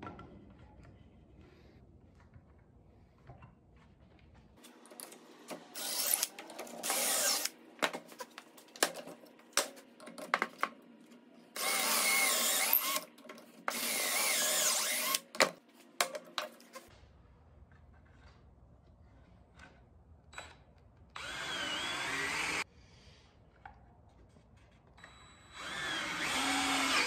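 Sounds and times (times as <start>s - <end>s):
cordless drill boring wood: 5.8s - 7.5s, 11.6s - 13.0s, 13.7s - 15.2s, 21.2s - 22.6s, 25.5s - 27.0s.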